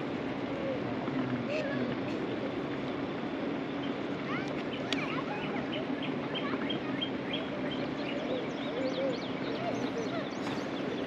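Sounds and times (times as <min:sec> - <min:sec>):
birds singing and calling: 0:03.6 - 0:11.0.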